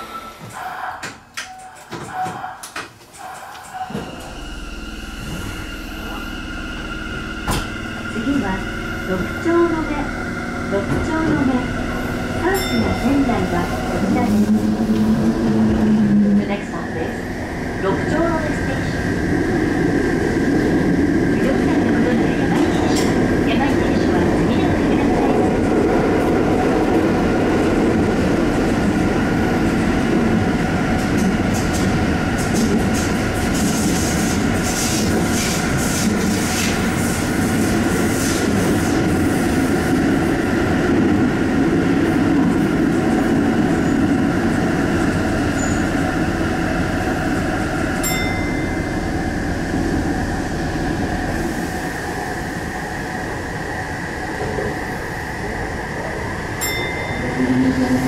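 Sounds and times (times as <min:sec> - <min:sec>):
train wheels rumbling on rail: 0:00.0 - 0:58.0
motor whine: 0:04.0 - 0:09.4
high steady tone: 0:04.4 - 0:15.5, 0:48.0 - 0:49.8, 0:56.6 - 0:58.0.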